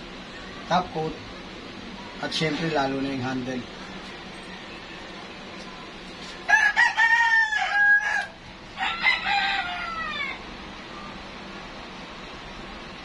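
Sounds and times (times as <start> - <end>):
steady background hum: 0.0 - 13.0
rooster crowing: 6.5 - 10.5.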